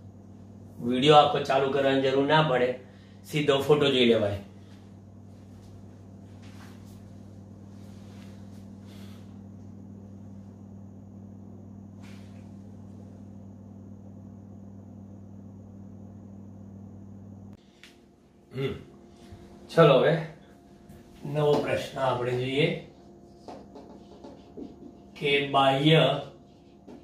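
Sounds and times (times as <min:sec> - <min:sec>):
faint high whine: 0:00.0 - 0:27.0
low electrical hum: 0:00.0 - 0:27.0
faint soft rustles: 0:04.6 - 0:09.2.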